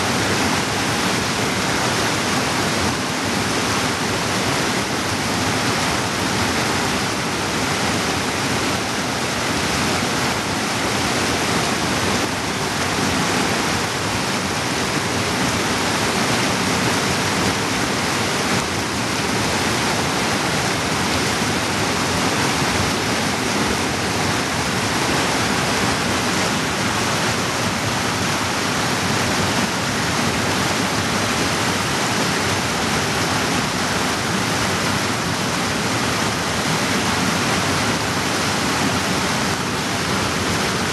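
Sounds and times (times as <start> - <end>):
creek rushing over boulders: 0.0 - 40.9.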